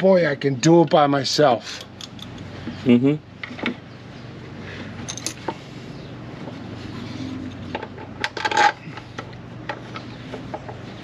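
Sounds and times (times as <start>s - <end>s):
steady low hum: 0.0s - 11.0s
metal parts clinking: 5.0s - 5.5s, 8.2s - 8.8s.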